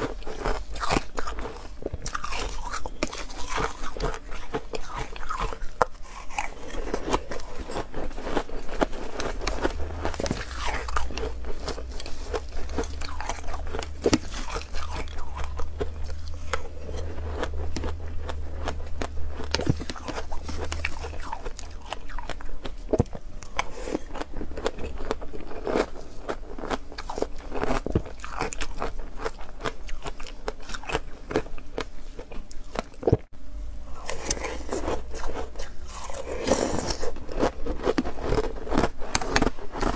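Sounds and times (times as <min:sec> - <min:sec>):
chewing crunchy ice: 0:00.0 - 0:33.3, 0:33.9 - 0:39.9.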